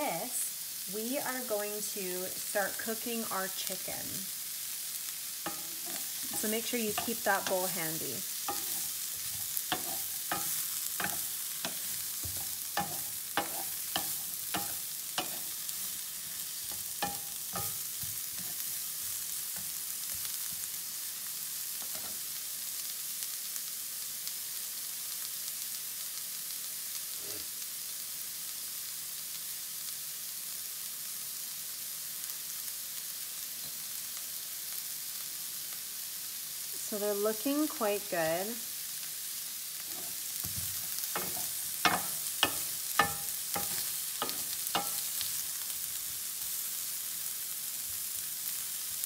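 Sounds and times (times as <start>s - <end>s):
vegetables sizzling in oil: 0.0s - 49.0s
wooden spoon scraping a pan: 5.4s - 20.6s, 39.8s - 45.4s.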